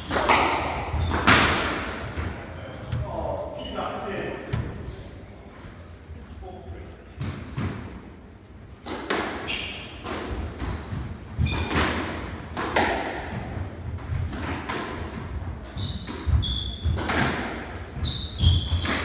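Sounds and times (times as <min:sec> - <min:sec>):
shoe squeaks: 0:00.9 - 0:01.3, 0:02.4 - 0:04.0, 0:04.8 - 0:05.4, 0:09.4 - 0:12.6, 0:15.6 - 0:17.1, 0:17.7 - 0:19.0.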